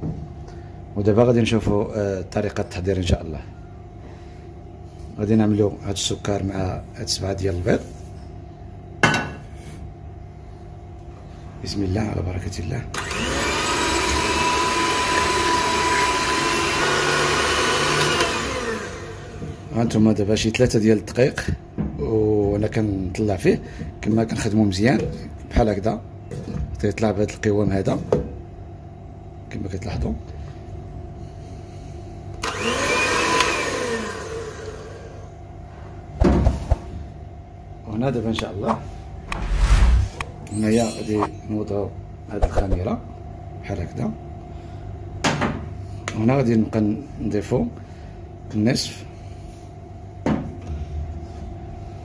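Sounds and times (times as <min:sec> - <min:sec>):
electric hand mixer whine: 0:13.0 - 0:19.6, 0:32.4 - 0:35.2.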